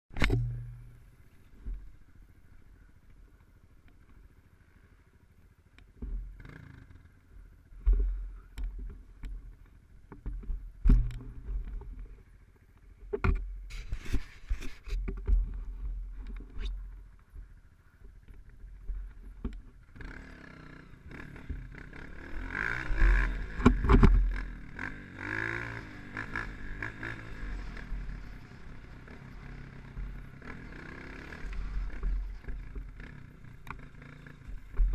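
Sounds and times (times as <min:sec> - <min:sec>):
dirt bike engine: 0:00.1 - 0:34.9
knocks and thumps from bumps: 0:06.0 - 0:06.4, 0:10.1 - 0:12.1, 0:13.0 - 0:16.6, 0:23.5 - 0:24.3, 0:34.5 - 0:34.9.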